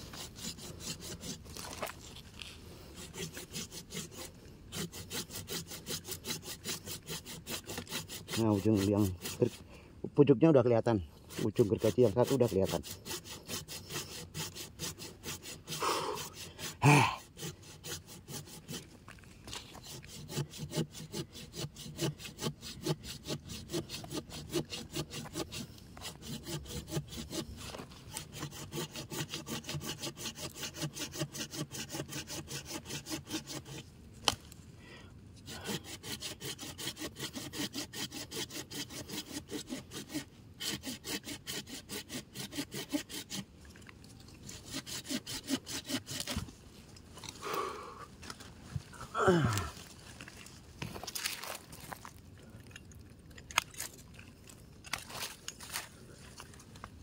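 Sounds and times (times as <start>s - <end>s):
hand saw cutting wood: 0.0s - 9.7s, 10.8s - 34.4s, 35.4s - 43.5s, 44.3s - 46.6s.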